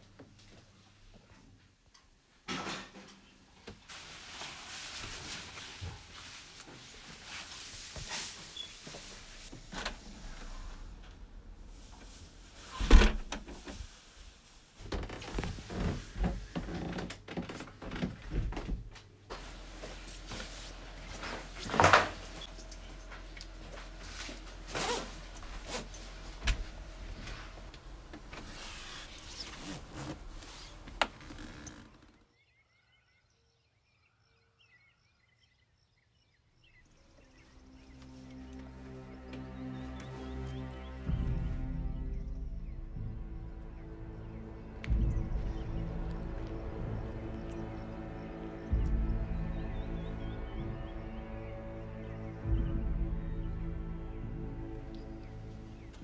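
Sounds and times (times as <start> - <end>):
padded coat rustling: 3.9 - 9.7, 19.3 - 32.2
low steady hum: 19.3 - 31.1.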